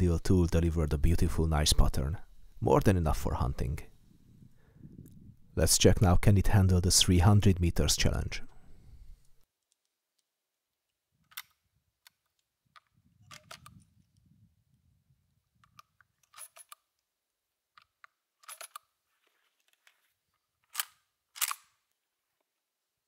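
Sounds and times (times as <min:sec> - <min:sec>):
rifle metallic clicks: 0:17.8 - 0:18.9, 0:20.7 - 0:21.8.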